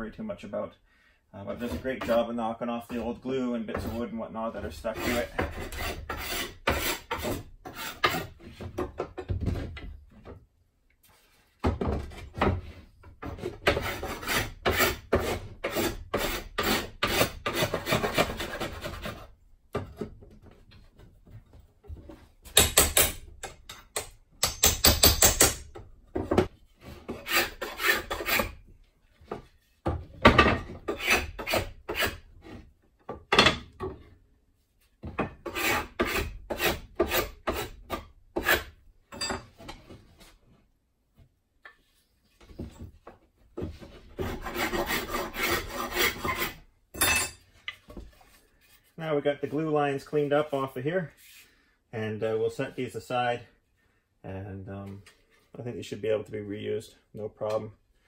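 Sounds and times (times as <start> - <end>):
metal bar scraping wood: 1.5 - 9.9, 11.8 - 21.2, 22.0 - 28.6, 29.3 - 32.7, 35.0 - 40.3, 43.6 - 49.0.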